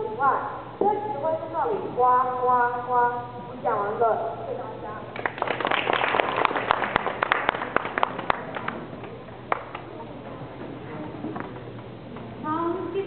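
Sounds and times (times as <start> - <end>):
audience applauding: 5.2 - 8.8.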